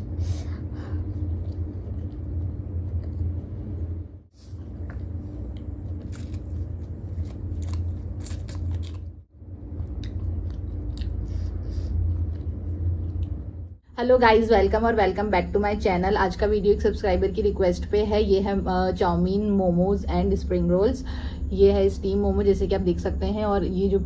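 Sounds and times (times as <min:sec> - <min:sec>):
steady low hum: 0:00.0 - 0:24.0
person chewing food: 0:00.8 - 0:03.7, 0:04.4 - 0:13.5.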